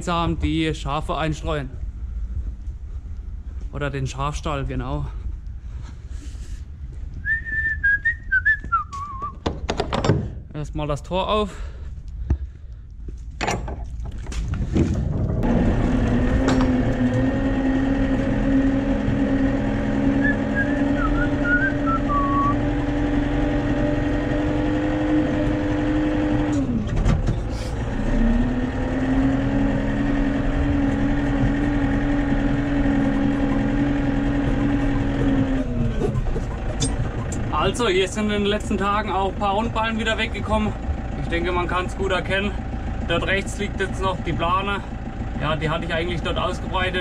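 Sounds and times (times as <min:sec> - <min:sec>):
knocks: 0:09.4 - 0:10.4
tractor diesel engine running: 0:11.0 - 0:47.0.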